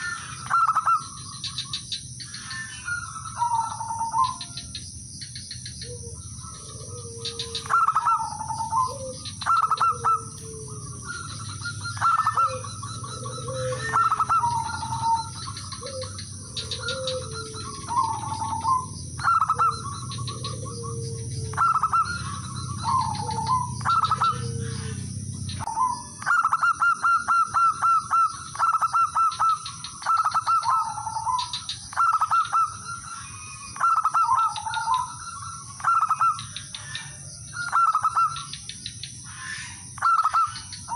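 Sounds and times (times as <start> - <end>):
dove cooing: 0.0 - 40.9
lower cooing voice: 5.8 - 38.5.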